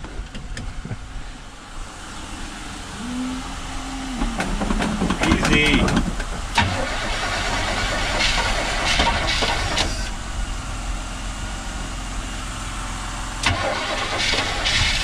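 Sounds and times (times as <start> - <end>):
engine cranking and sputtering: 2.2 - 10.5, 13.4 - 15.0.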